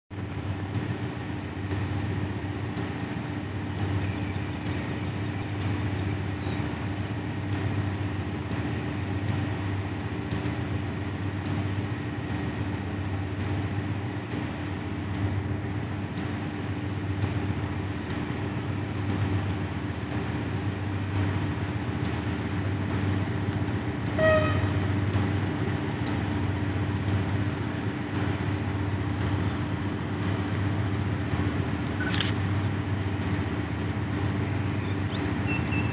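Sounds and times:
train locomotive rumbling: 0.1 - 35.9
train horn toot: 24.1 - 25.0.

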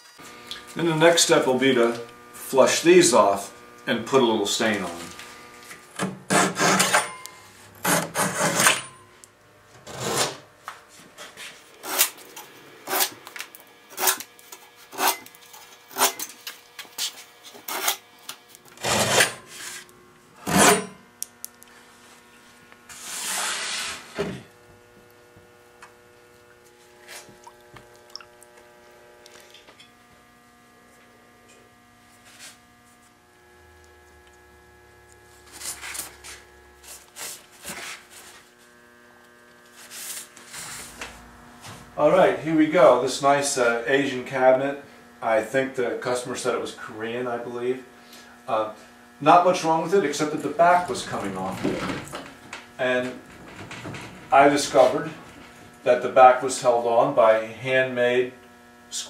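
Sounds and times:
saw rasping through wood: 6.3 - 7.0, 7.8 - 8.9, 9.8 - 10.4, 11.4 - 13.2, 13.9 - 16.3, 17.0 - 18.1, 18.8 - 20.9, 22.9 - 24.2
faint steady hum: 24.0 - 59.0.

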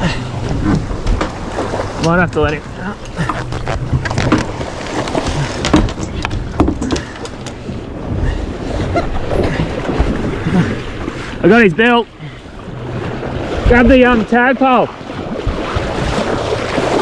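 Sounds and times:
boat engine running low: 0.0 - 17.0
water noise: 0.0 - 17.0
wind: 0.0 - 17.0
knocks and clatter on deck: 5.2 - 7.1.

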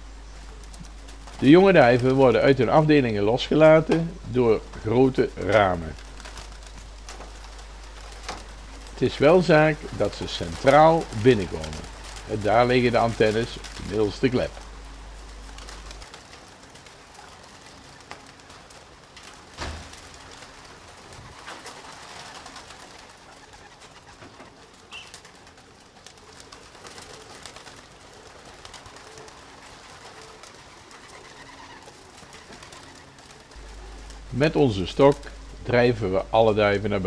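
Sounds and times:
pigeons cooing: 0.0 - 37.0.

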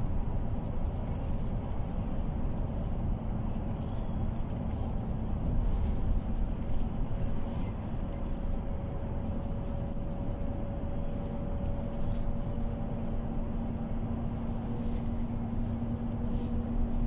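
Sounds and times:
bus engine and road rumble: 0.0 - 17.0.

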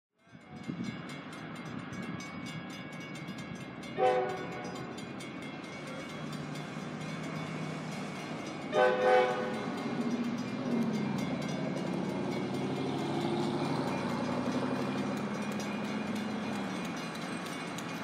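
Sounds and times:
diesel locomotives rumbling: 0.2 - 18.0
locomotive air horn: 4.0 - 4.8, 8.7 - 9.7.

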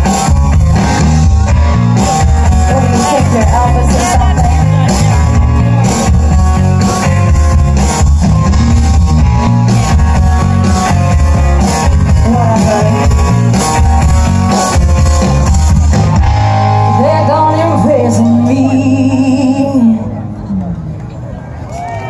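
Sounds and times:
rock band playing: 0.0 - 20.0
woman singing: 2.6 - 5.1, 12.2 - 13.1, 16.9 - 20.1.

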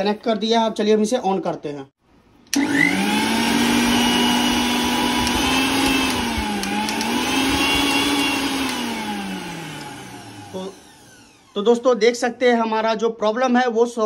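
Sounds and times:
mixer grinder motor whine: 2.5 - 11.9.

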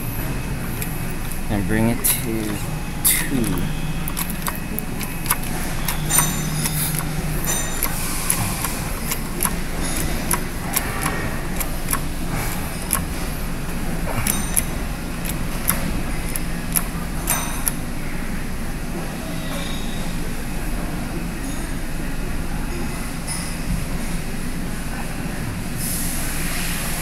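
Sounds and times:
steady low hum: 0.0 - 23.2
metal clicks and clinks: 0.7 - 13.3, 14.1 - 17.8.

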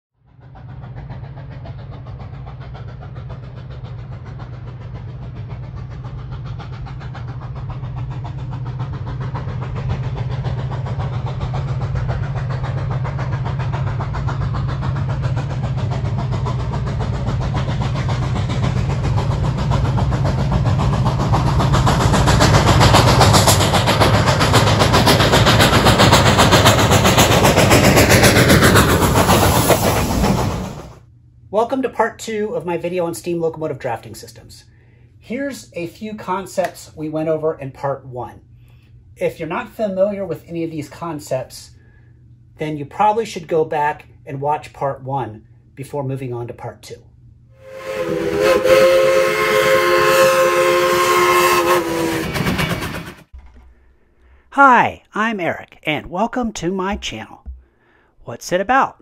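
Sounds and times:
low rumble: 0.2 - 31.6
steam locomotive approaching: 0.2 - 54.6.

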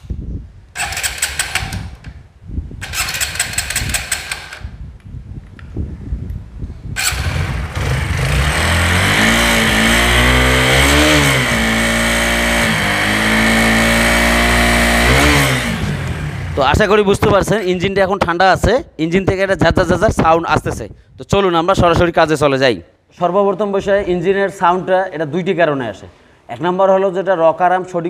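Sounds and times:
electric starter cranking: 0.7 - 2.2, 2.8 - 4.8, 7.0 - 16.6
harsh buzzing engine rattle: 0.8 - 2.1, 2.8 - 4.7, 7.0 - 16.8
motorcycle engine idling and revving: 0.8 - 2.2, 2.8 - 4.8, 7.0 - 17.0.

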